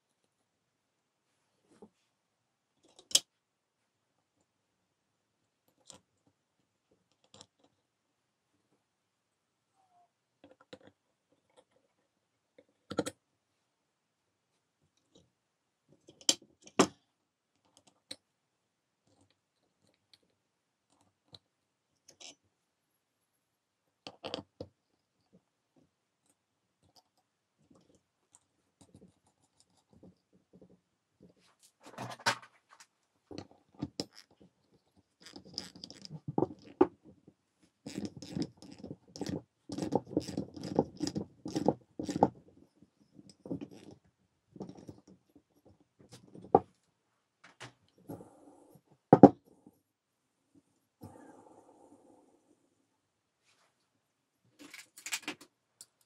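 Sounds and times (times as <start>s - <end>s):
metal parts clinking: 54.6s - 55.4s.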